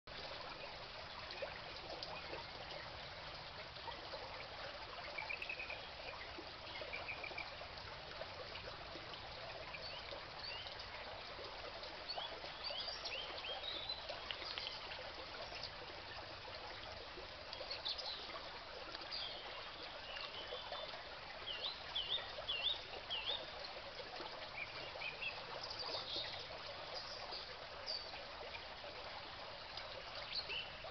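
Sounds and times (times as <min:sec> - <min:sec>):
stream trickling over stones: 0:00.1 - 0:30.9.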